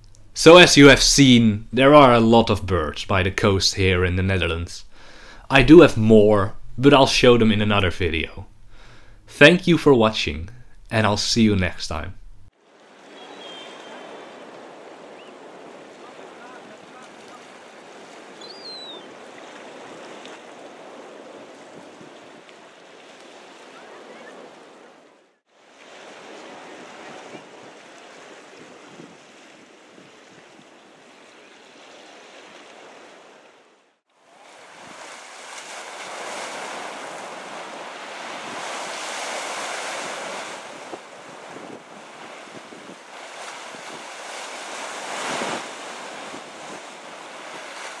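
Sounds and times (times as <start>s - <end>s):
surf breaking on rocks: 12.6s - 18.4s, 34.3s - 48.0s
high falling bird call: 13.0s - 14.4s, 18.4s - 19.2s
wind on microphone: 39.8s - 44.2s.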